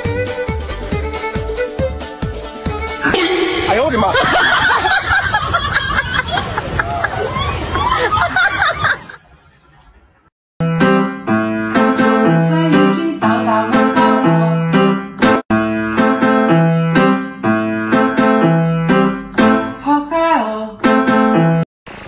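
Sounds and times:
piano background music: 10.6 - 19.9, 20.8 - 21.6.

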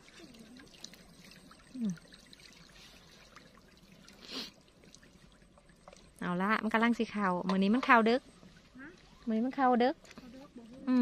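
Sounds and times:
water trickling and dripping: 0.0 - 11.0.

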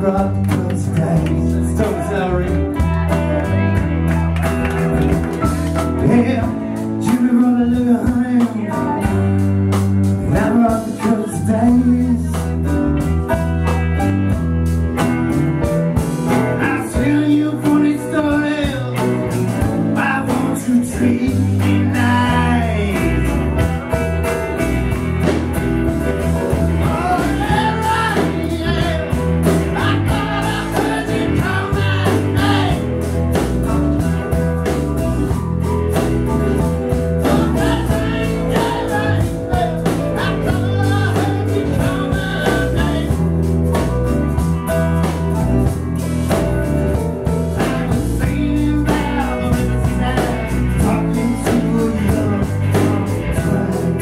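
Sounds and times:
man singing: 0.0 - 3.8, 5.8 - 14.4, 16.4 - 24.0, 26.5 - 34.3, 36.6 - 44.0, 47.4 - 54.0
electric guitars: 0.0 - 54.0
low bass line: 0.0 - 54.0.

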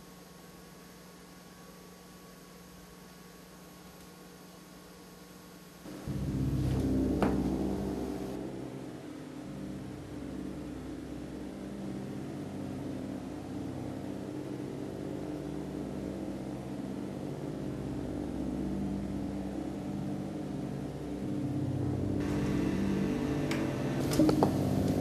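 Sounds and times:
low drone of held tones: 5.9 - 25.0.

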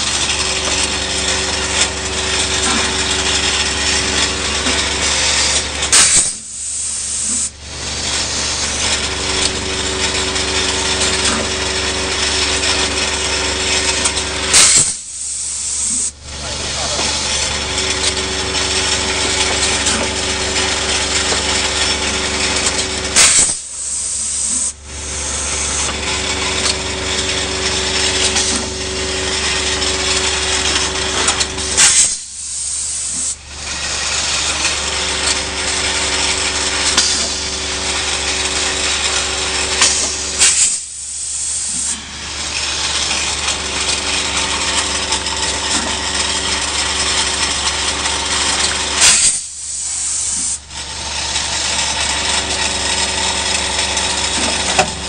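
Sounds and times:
machine humming: 0.0 - 55.0
pneumatic hiss bursts: 2.4 - 9.5, 14.4 - 17.4, 19.3 - 26.0, 28.2 - 28.8, 31.1 - 44.2, 47.9 - 50.8.

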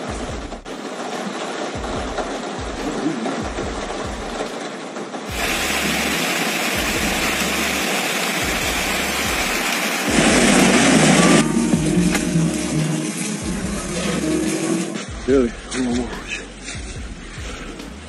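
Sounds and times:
water and slush rushing down street: 0.0 - 18.0.

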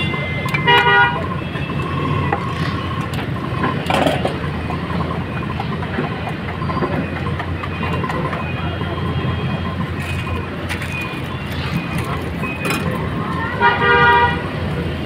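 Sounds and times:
street traffic rumbling: 0.0 - 15.0
vehicle horn honking: 0.5 - 1.4, 13.3 - 14.5.

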